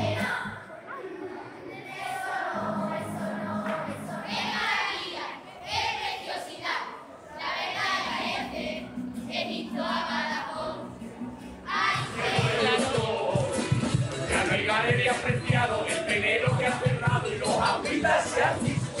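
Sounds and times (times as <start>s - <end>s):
music: 0.0s - 0.7s, 1.9s - 19.0s
children singing in chorus: 0.0s - 10.8s, 11.6s - 12.8s.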